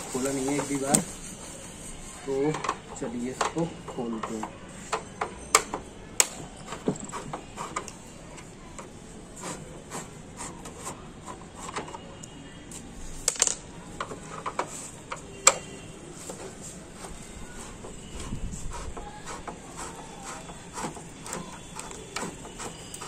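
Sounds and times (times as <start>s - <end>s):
screwdriver scraping plastic: 0.0s - 12.1s, 14.0s - 23.0s.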